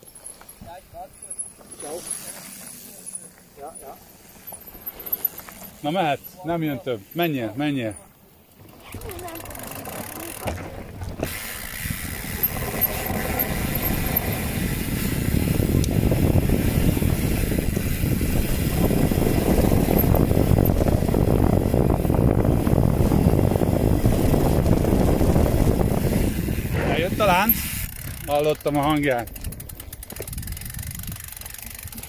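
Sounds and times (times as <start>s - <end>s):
tyres rolling over rough trail: 0.0s - 32.0s
wind buffeting the microphone: 10.5s - 32.0s.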